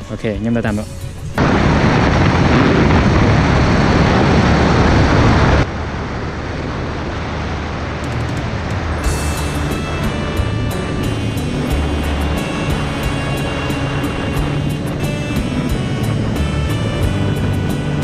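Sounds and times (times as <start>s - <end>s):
wind rushing over microphone: 1.4s - 18.0s
motorcycle engine running: 5.8s - 18.0s.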